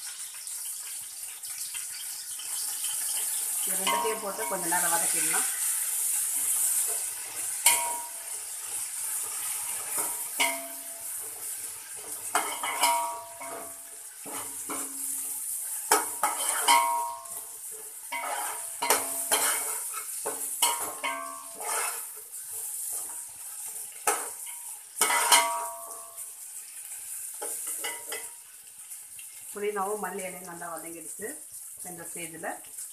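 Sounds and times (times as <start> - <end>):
oil sizzling: 0.0 - 32.9
metal pot ringing: 3.7 - 4.7, 7.6 - 8.3, 10.4 - 11.1, 12.4 - 13.8, 16.5 - 17.4, 20.6 - 21.6, 25.0 - 26.3
ladle scraping and knocking on pot: 18.1 - 22.1.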